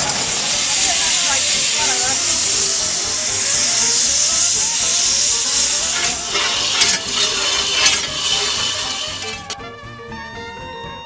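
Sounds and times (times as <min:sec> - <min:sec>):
steam hissing: 0:00.0 - 0:09.6.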